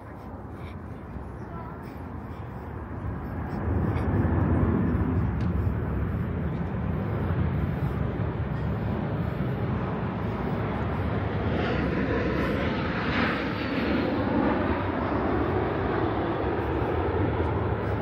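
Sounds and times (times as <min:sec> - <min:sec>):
jet airliner passing overhead: 0:00.0 - 0:18.0.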